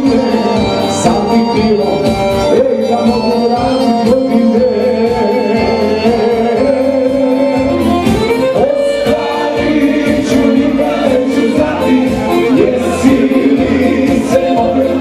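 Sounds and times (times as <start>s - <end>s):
live band playing: 0.0s - 15.0s
person singing: 0.0s - 15.0s.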